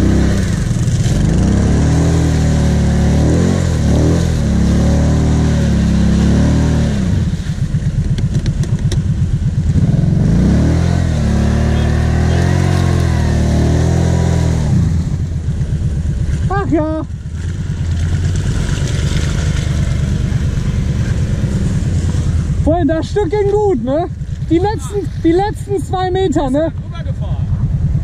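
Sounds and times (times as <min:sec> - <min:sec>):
quad engine revving: 0:00.0 - 0:28.0
sharp clicks: 0:08.0 - 0:09.1.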